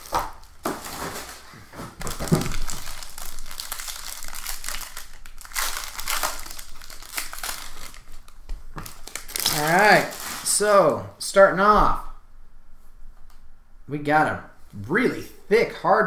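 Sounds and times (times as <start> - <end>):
foil wrapper tearing and crinkling: 0.0 - 10.7.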